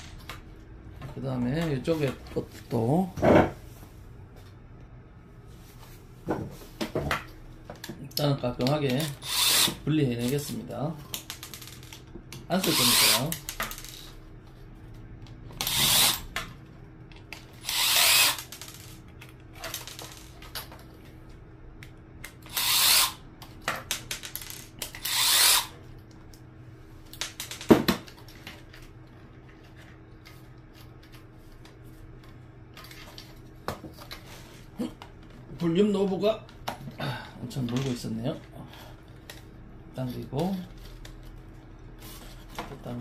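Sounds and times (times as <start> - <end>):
electric screwdriver running: 9.0 - 9.8, 12.6 - 13.4, 15.6 - 16.3, 17.6 - 18.5, 22.5 - 23.2, 25.0 - 25.7.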